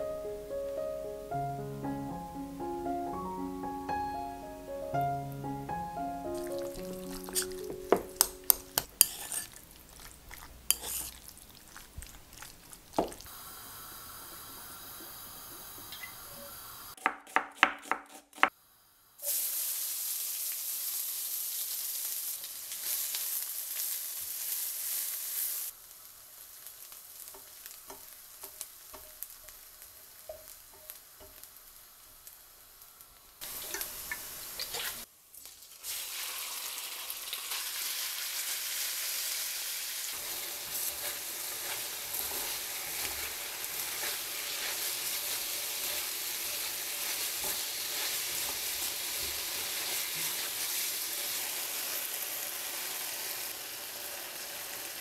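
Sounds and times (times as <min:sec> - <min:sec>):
onions sizzling in oil: 0:06.2 - 0:17.0, 0:18.6 - 0:55.0
meat mixed in ceramic bowl: 0:06.4 - 0:13.3, 0:40.3 - 0:50.8.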